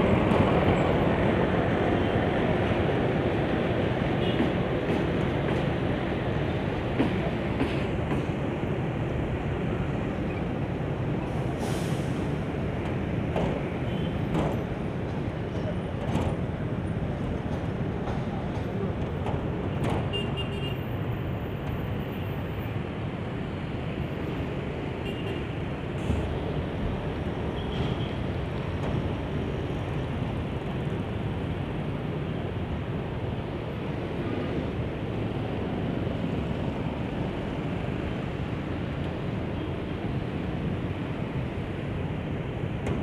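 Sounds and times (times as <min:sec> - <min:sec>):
road traffic rumble: 0:00.0 - 0:43.0.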